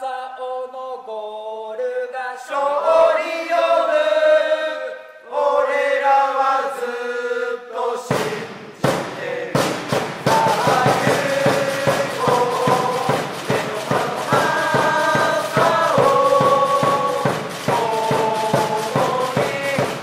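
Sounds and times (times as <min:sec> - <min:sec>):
football supporters chanting: 0:01.8 - 0:20.0
loud sharp hits: 0:08.1 - 0:20.0.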